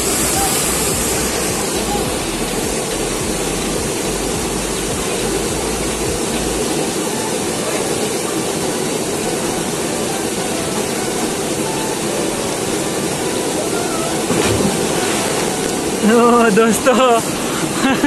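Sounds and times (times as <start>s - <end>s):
low rumble: 0.0s - 6.6s
waterfall rushing: 0.0s - 18.0s.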